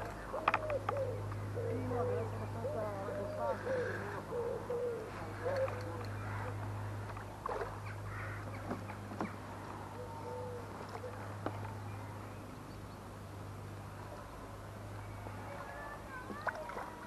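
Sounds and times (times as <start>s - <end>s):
steady low hum: 0.0s - 17.0s
fish splashing in water: 7.2s - 9.8s, 15.4s - 17.0s.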